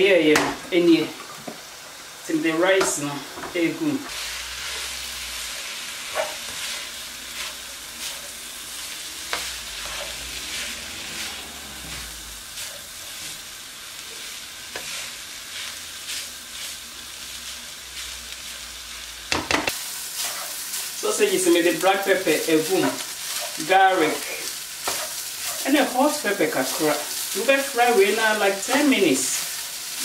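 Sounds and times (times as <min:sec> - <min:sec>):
rice sizzling in frying pan: 0:00.0 - 0:30.0
spatula scraping and tapping pan: 0:06.1 - 0:06.8, 0:09.2 - 0:10.2, 0:24.8 - 0:25.6.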